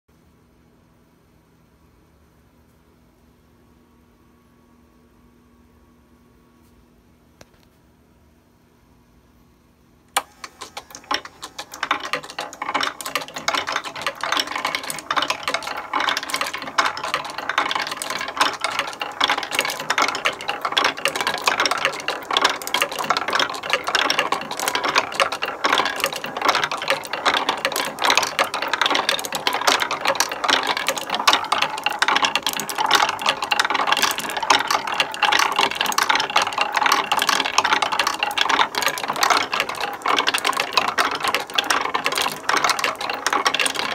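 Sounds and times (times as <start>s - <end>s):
marbles clacking on wooden tracks: 10.2s - 43.9s.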